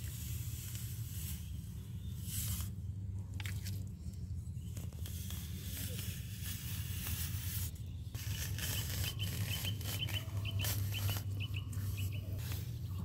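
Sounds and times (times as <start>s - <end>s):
steady low rumble: 0.0s - 13.0s
small bird chirping: 7.7s - 13.0s.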